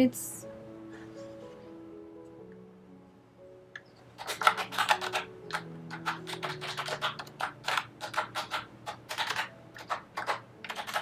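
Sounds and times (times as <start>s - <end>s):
keyboard typing clicks: 3.8s - 11.0s.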